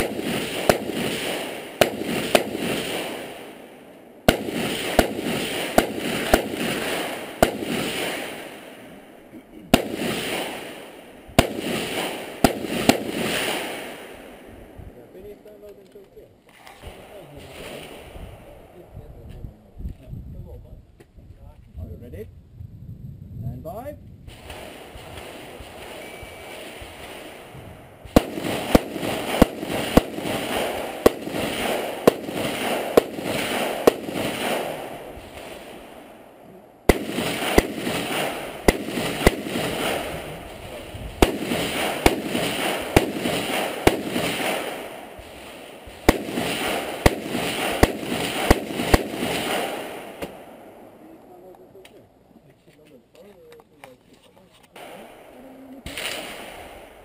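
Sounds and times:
gunshot echo: 0.0s - 9.0s, 9.7s - 14.5s, 24.3s - 51.2s, 54.8s - 57.0s
rifle shots: 0.0s - 9.1s, 9.7s - 14.5s, 24.3s - 51.1s, 54.8s - 57.0s.

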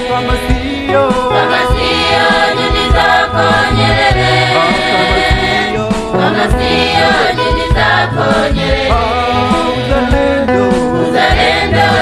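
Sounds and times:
choir singing over a beat: 0.0s - 12.0s.

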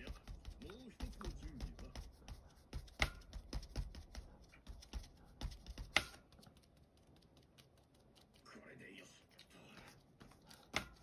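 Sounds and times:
foam tool tapping on stencil: 0.0s - 6.2s.

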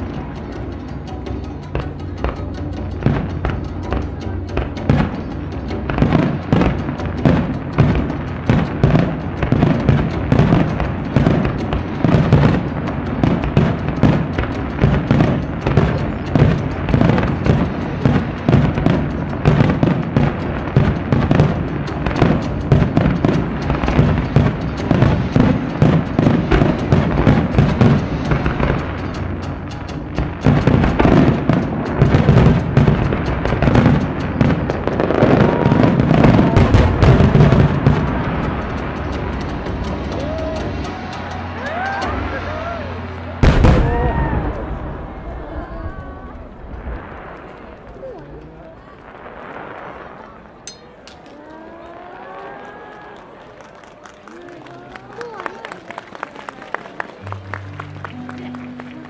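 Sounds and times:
taiko drumming: 0.0s - 45.0s
fireworks bursting and crackling: 0.0s - 59.0s.

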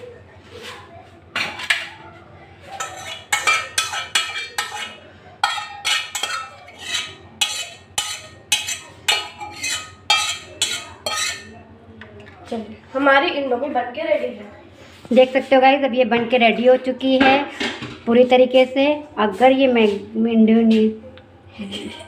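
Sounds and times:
metal utensil scraping steel pot: 2.8s - 11.6s.

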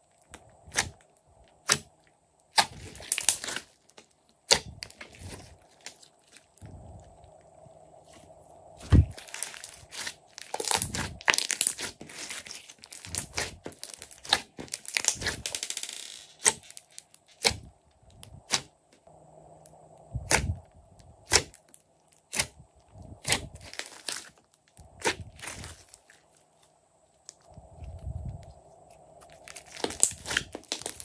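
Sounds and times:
slime squelching and popping: 1.6s - 6.7s, 8.8s - 15.5s, 29.2s - 31.0s.

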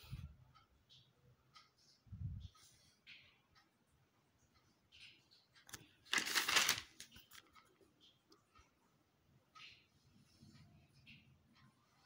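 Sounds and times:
paper rustling: 6.1s - 7.4s.

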